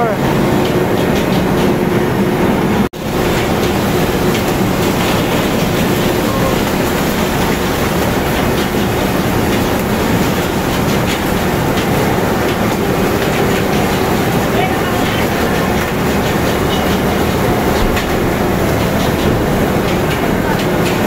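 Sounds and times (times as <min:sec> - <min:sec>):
conveyor rattling: 0:00.0 - 0:21.0.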